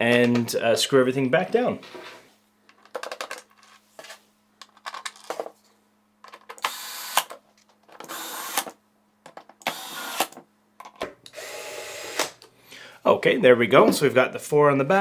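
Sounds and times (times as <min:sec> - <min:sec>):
electric screwdriver driving screws: 0:06.6 - 0:07.4, 0:08.0 - 0:08.8, 0:09.6 - 0:10.4, 0:11.3 - 0:12.4
screws clicking into holes: 0:08.0 - 0:08.8, 0:09.6 - 0:10.4.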